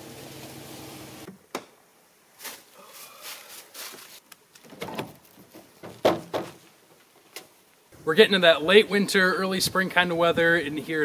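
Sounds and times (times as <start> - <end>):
footsteps in dry leaves: 2.4 - 4.3.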